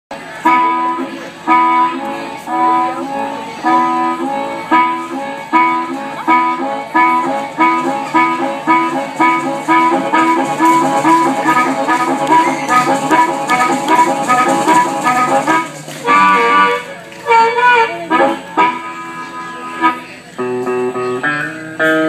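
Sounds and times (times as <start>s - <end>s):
harmonica chugging chords: 0.4s - 22.0s.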